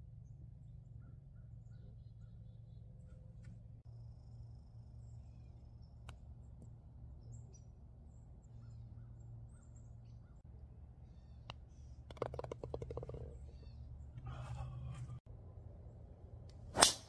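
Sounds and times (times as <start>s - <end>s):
faint birds chirping: 0.0s - 16.1s.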